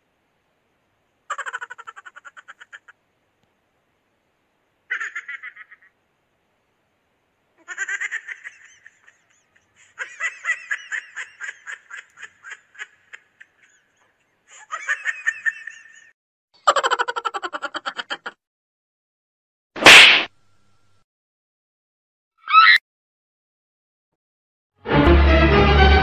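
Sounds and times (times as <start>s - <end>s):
cartoon-like cackling: 1.3s - 3.0s, 4.9s - 6.0s, 14.5s - 18.4s, 22.4s - 22.8s.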